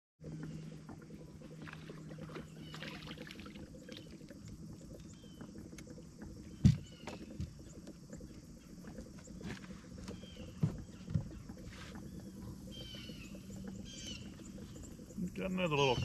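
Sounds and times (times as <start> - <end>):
light water splashes: 0.2 - 16.0
low hum: 0.2 - 16.0
bird chirps: 10.1 - 16.0.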